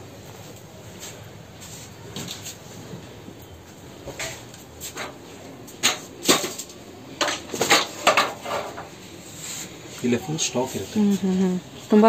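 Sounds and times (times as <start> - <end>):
hard objects knocking and clattering: 5.0 - 8.9.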